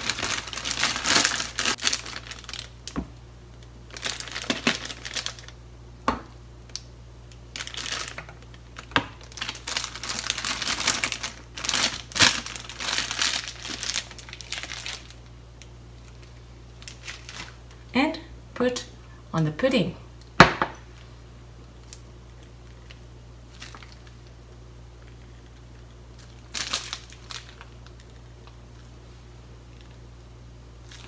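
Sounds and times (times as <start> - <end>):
plastic bag crinkling: 0.0 - 3.0, 3.6 - 5.6, 7.4 - 17.8, 21.8 - 28.9, 30.8 - 31.0.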